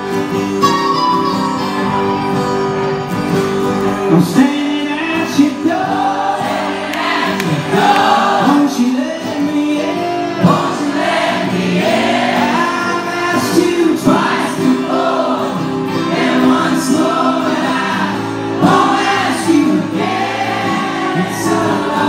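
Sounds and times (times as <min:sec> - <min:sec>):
mandolin: 0:00.0 - 0:04.5
strummed acoustic guitar: 0:00.0 - 0:22.0
man singing: 0:04.0 - 0:06.6, 0:07.5 - 0:15.3, 0:16.2 - 0:20.0, 0:20.7 - 0:22.0.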